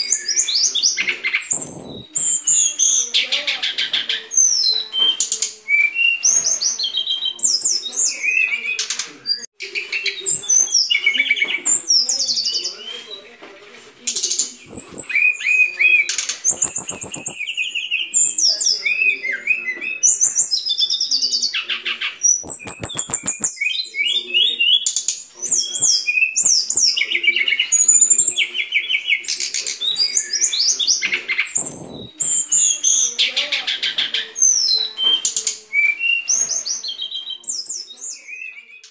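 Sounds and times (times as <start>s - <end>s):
bird singing trills and rattles: 14.1s - 38.9s.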